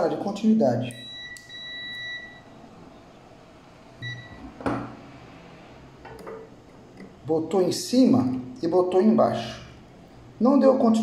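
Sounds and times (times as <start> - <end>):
multimeter continuity beep: 0.8 - 2.6, 4.0 - 4.4.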